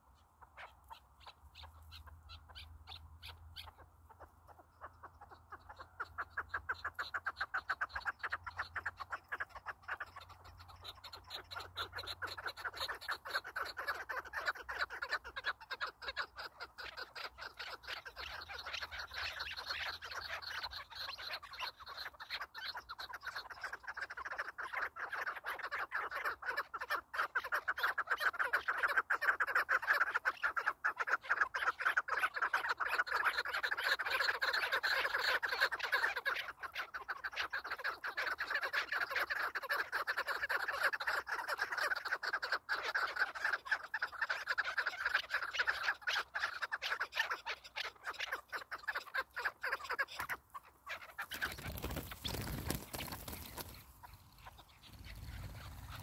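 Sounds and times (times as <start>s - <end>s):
partridges cackling chorus: 0.0s - 56.0s
whirring wings of flushing birds: 51.3s - 54.2s, 54.9s - 56.0s.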